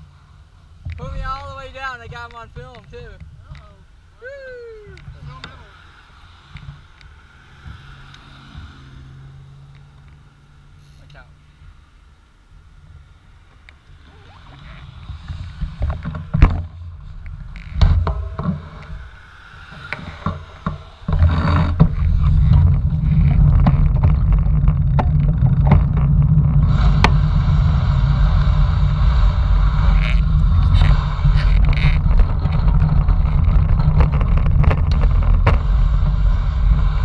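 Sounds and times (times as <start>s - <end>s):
wind buffeting microphone: 14.0s - 37.0s.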